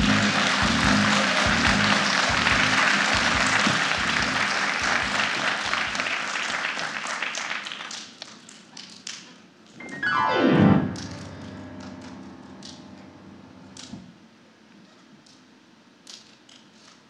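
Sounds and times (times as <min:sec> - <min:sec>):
audience applause: 0:00.0 - 0:08.2
piano glissando: 0:09.8 - 0:13.9.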